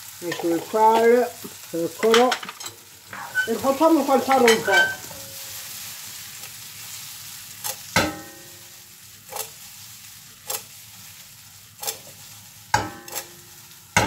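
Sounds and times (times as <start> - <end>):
vegetables sizzling in a frying pan: 0.0 - 14.0
pan clanking: 0.2 - 5.4, 8.0 - 8.6.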